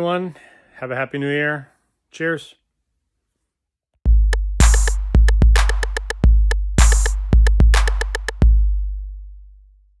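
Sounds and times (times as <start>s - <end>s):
drum machine beat: 4.0s - 9.0s.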